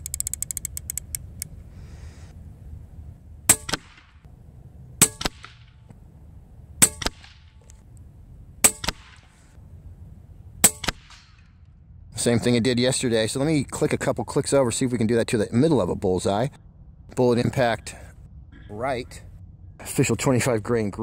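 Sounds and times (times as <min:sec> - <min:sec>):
pellet striking target: 0:03.5 - 0:04.2, 0:05.0 - 0:05.8, 0:06.8 - 0:07.5, 0:08.6 - 0:09.3, 0:10.6 - 0:11.4
air rifle shots: 0:03.5 - 0:04.3, 0:05.0 - 0:05.8, 0:06.8 - 0:07.7, 0:08.6 - 0:09.5, 0:10.6 - 0:11.5.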